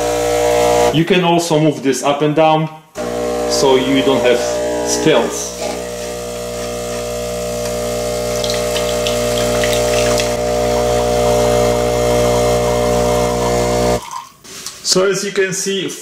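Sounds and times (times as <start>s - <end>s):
espresso machine pump buzzing: 0.0s - 1.0s, 3.0s - 14.0s
coffee streaming into a cup: 3.0s - 14.0s.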